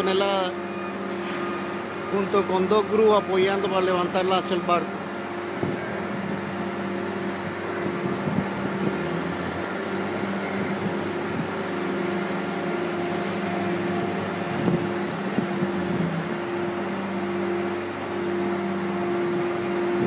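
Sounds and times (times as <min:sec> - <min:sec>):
crane machinery droning: 0:00.0 - 0:20.0.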